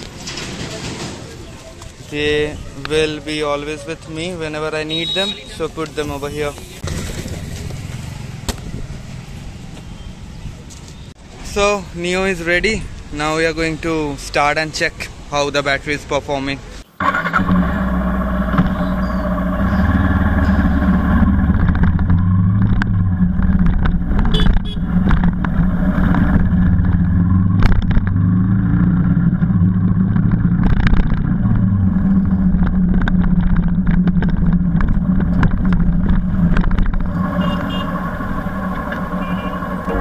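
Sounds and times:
road and wind noise: 0.0s - 40.0s
motorcycle engine revving: 6.8s - 9.4s, 17.0s - 40.0s.

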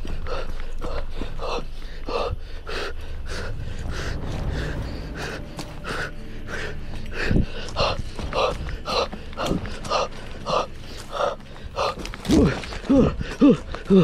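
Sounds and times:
man breathing hard: 0.0s - 14.0s
handling noise rumble: 3.1s - 11.1s.

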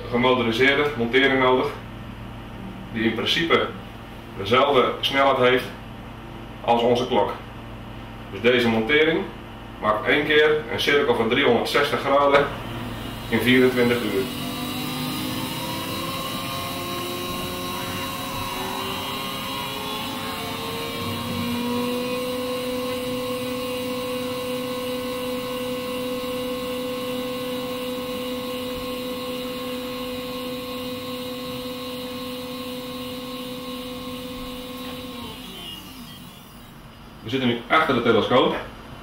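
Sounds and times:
telescope mount motor whine: 12.0s - 37.2s.

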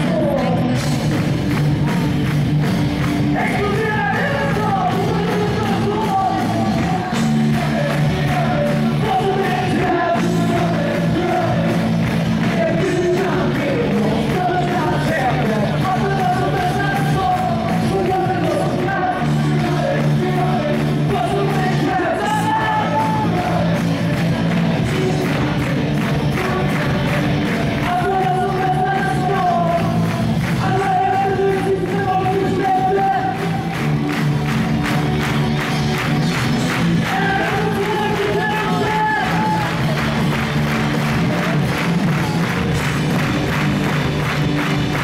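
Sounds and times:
live rock band: 0.0s - 45.0s
lead singer singing: 3.3s - 33.8s, 35.9s - 40.4s.

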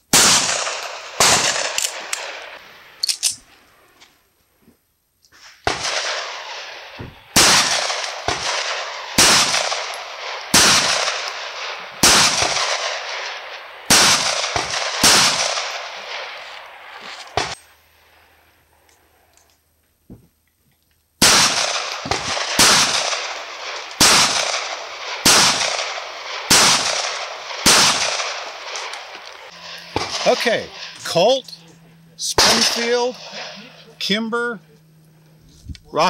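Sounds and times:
pistol shots echoing: 0.1s - 3.0s, 5.6s - 17.6s, 21.2s - 34.0s.

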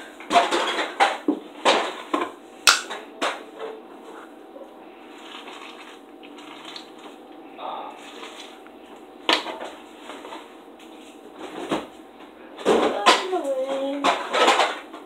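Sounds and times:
kitchen clatters and knocks: 0.0s - 3.8s, 12.6s - 15.0s.

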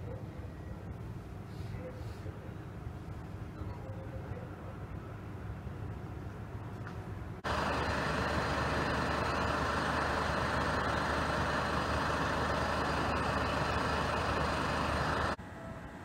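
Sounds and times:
fire engines idling: 7.4s - 15.5s.

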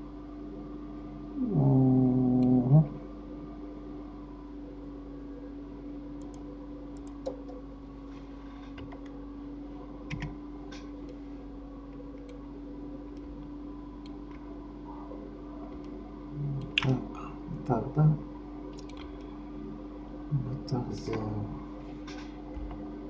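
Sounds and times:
steady low hum: 0.0s - 23.0s
computer mouse clicks: 6.2s - 7.6s, 10.1s - 11.2s, 18.7s - 19.3s
keyboard clicks: 7.0s - 7.6s, 10.1s - 10.9s, 18.7s - 19.3s.

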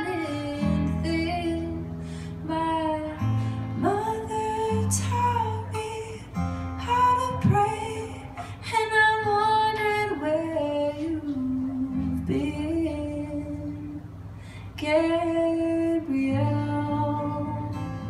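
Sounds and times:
woman singing long notes: 0.0s - 14.1s
strummed acoustic guitar: 0.0s - 18.0s.

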